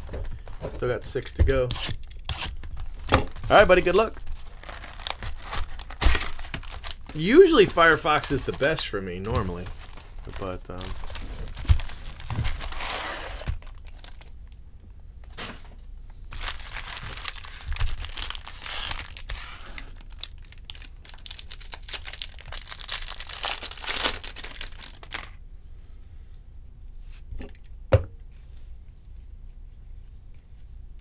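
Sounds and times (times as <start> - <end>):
foil wrapper crinkling and tearing: 1.8 - 14.4, 16.3 - 25.4.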